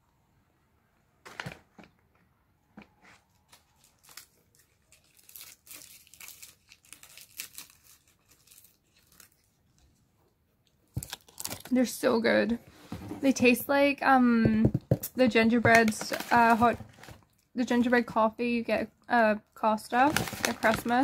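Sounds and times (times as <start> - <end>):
packaging crinkling: 3.2 - 9.8, 10.9 - 11.9, 15.7 - 17.4, 20.0 - 21.0.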